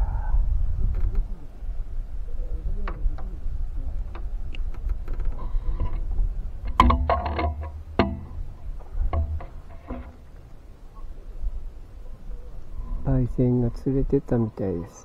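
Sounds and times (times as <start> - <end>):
wind rumbling on microphone: 0.0 - 14.8
light clicks and knocks: 4.0 - 10.6.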